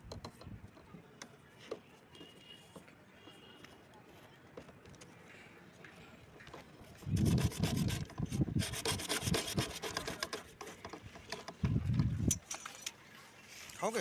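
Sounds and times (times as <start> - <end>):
plastic pipe scraping: 6.9 - 12.9.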